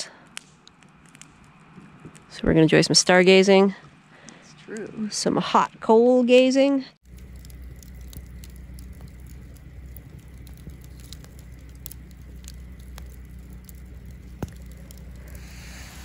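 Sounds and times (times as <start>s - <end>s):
campfire crackling and popping: 0.1s - 2.4s, 7.0s - 16.0s
soft hiss: 7.2s - 16.0s.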